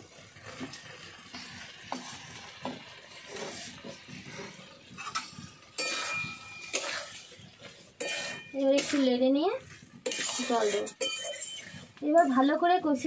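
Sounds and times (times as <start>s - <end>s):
faint frying sizzle: 0.0s - 13.0s
spatula scraping metal wok: 0.1s - 13.0s.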